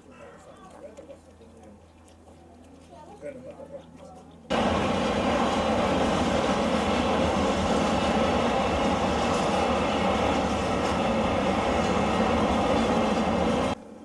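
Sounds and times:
diesel rail vehicle idling: 4.5 - 13.8.

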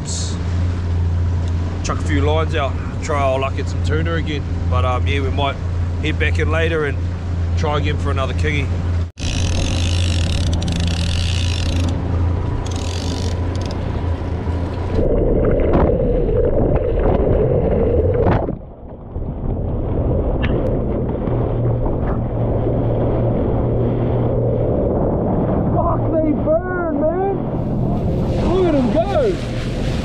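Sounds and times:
outboard motor running: 0.0 - 15.2
bow wave splashing: 0.0 - 30.0
water rushing past hull: 0.0 - 30.0
short rising squeaks: 9.2 - 13.9
muffled underwater rush: 13.8 - 30.0.

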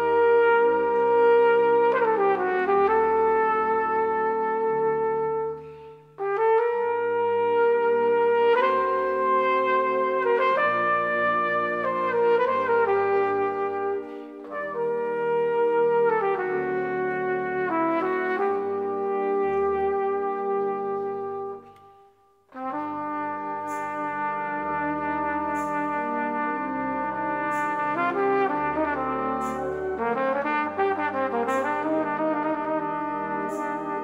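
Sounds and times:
solo trumpet: 0.0 - 34.0
wind band playing slow chords: 0.0 - 34.0
light cymbal stroke: 23.4 - 26.2.

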